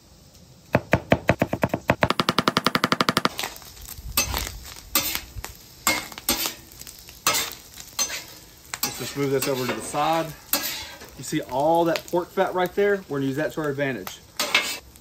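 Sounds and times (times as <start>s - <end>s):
knife chopping on cutting board: 0.8s - 3.3s
metal spatula scraping griddle: 4.2s - 11.2s, 14.4s - 14.9s.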